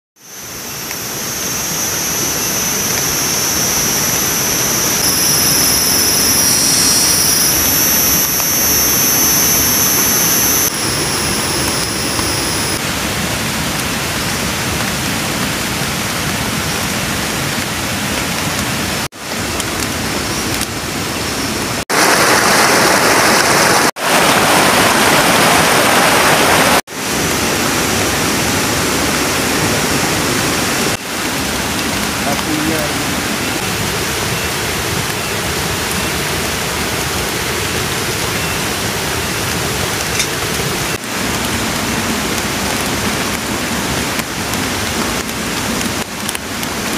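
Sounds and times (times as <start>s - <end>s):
high steady shrill: 0.2s - 12.8s
rain on foliage: 0.2s - 46.9s.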